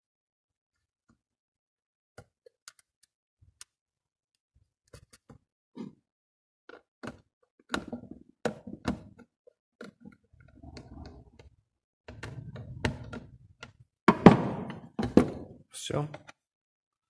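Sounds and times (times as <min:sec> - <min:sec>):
knock and scrape: 0:12.1 - 0:15.5.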